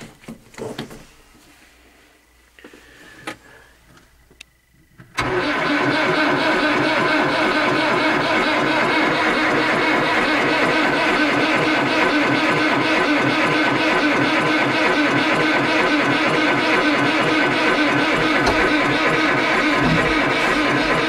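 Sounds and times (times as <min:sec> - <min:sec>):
tractor diesel engine running: 0:05.0 - 0:21.0.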